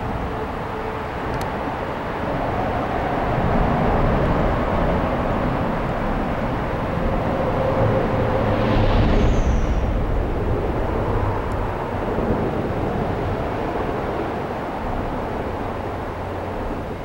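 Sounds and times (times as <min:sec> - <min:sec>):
highway traffic rumble: 0:00.0 - 0:17.0
brief high squeal: 0:08.4 - 0:10.1.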